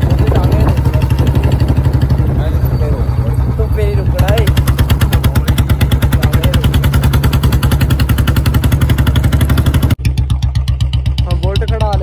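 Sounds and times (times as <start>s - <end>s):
motorcycle engine thumping: 0.0s - 12.0s.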